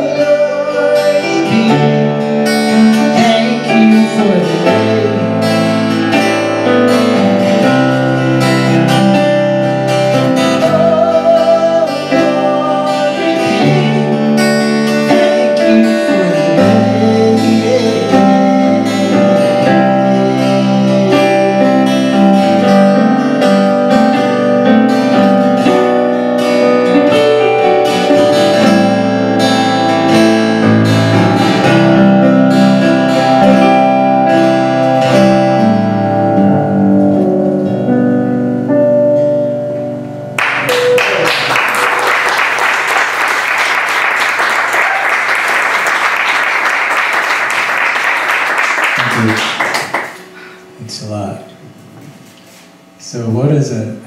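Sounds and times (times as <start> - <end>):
live guitar music: 0.0 - 54.0
audience applause: 40.4 - 50.4.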